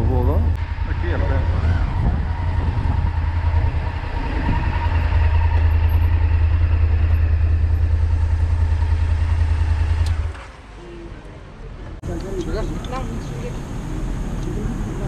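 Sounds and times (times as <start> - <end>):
motorcycle engine running: 0.0 - 10.5.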